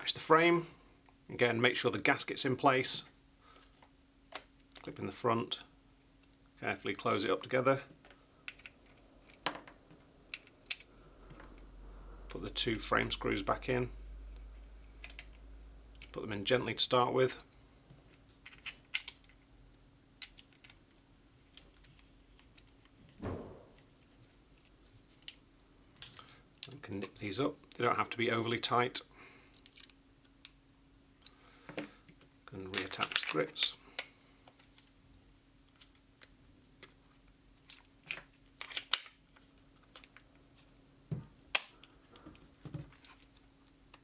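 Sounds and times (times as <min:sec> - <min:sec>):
soft thump: 0:23.2 - 0:23.8.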